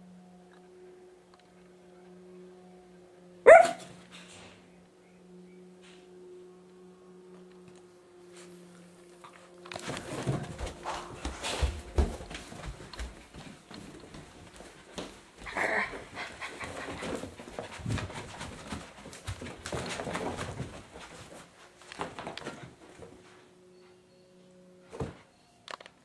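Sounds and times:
faint steady hum: 0:00.0 - 0:26.0
puppy barking: 0:03.5 - 0:03.9
puppy scrambling on carpet: 0:14.2 - 0:22.7.

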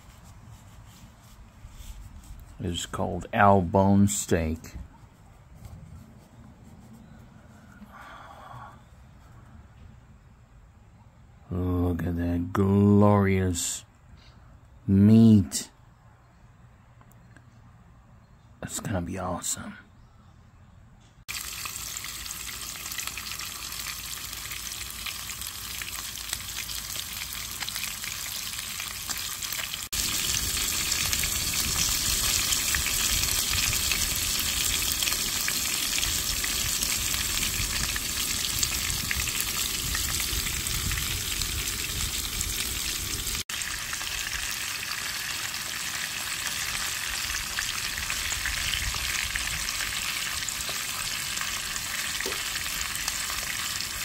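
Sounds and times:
steak sizzling in frying pan: 0:21.3 - 0:48.4.

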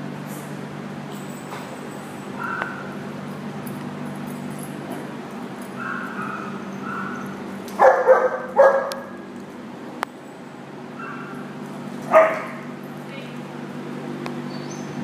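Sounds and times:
large dog barking: 0:05.8 - 0:09.2, 0:12.1 - 0:12.7.

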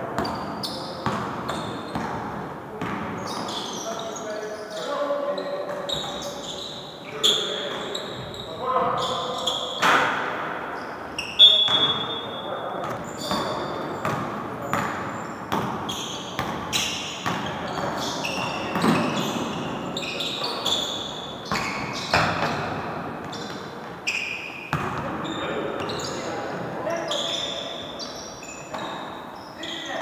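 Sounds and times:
players' voices: 0:00.0 - 0:24.2, 0:24.8 - 0:30.0
sneakers squeaking: 0:00.0 - 0:30.0
basketball bouncing on wooden court: 0:00.2 - 0:02.2, 0:12.8 - 0:19.7, 0:20.4 - 0:23.6, 0:24.7 - 0:26.0.

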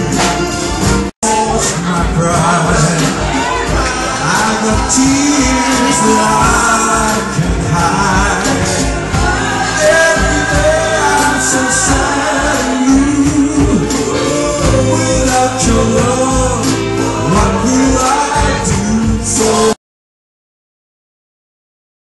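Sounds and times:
instrumental accompaniment: 0:00.0 - 0:19.8
men singing a slow ballad: 0:01.2 - 0:19.8.

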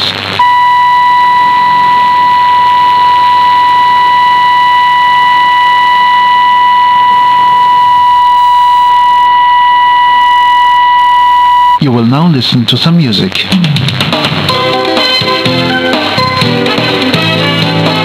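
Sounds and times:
radio band hiss: 0:00.0 - 0:09.2, 0:11.8 - 0:14.6
steady test tone: 0:00.4 - 0:11.9.

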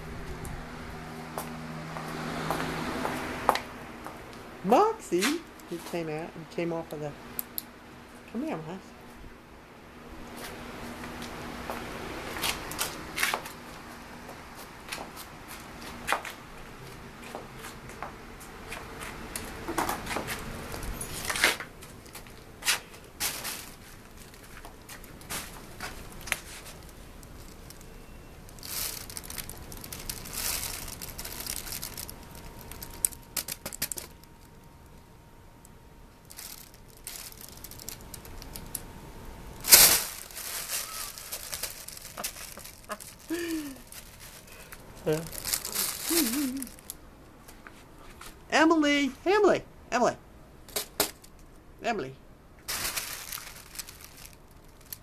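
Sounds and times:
rustling and crinkling: 0:10.2 - 0:34.9, 0:36.2 - 0:38.9, 0:39.5 - 0:48.5, 0:52.6 - 0:55.0.

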